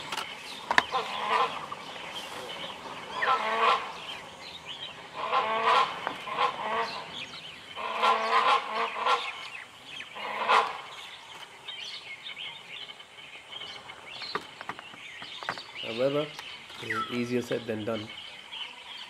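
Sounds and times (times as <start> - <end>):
hornbill calling harshly: 0.0 - 11.2
small birds chirping: 0.0 - 19.0.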